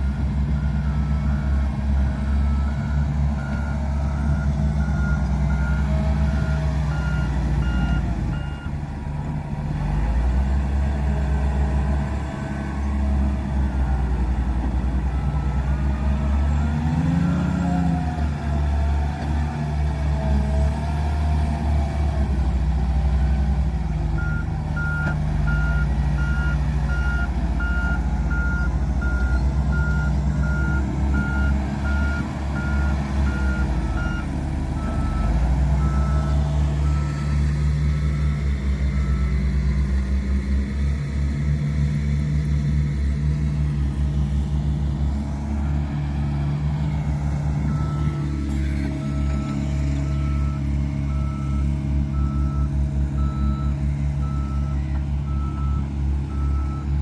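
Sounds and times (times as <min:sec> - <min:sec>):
diesel engine running: 0:00.0 - 0:57.0
reversing alarm beeping: 0:02.3 - 0:08.7, 0:24.2 - 0:38.4, 0:49.0 - 0:56.9.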